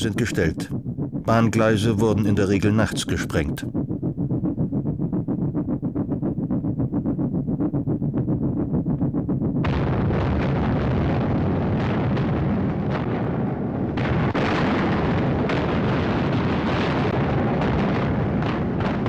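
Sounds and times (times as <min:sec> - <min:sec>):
crackling bangs: 0:09.6 - 0:19.0
heavy explosion blast: 0:09.6 - 0:19.0.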